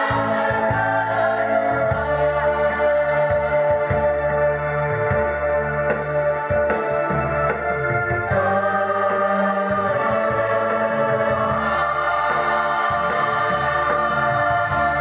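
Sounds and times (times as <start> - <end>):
girls' choir singing: 0.0 - 4.2, 8.3 - 15.0
electronic organ: 0.0 - 15.0.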